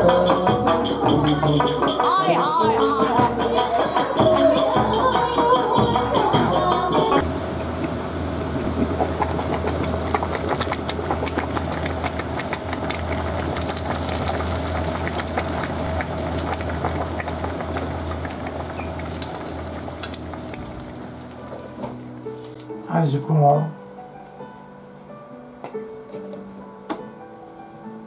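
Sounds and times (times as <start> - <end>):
steady low hum: 0.0 - 22.4
broth bubbling in a pot: 5.8 - 21.9.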